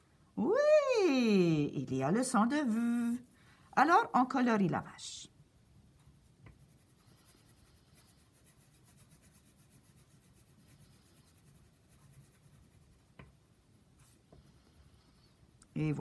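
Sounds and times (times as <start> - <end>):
crayon scratching on paper: 6.1 - 15.4.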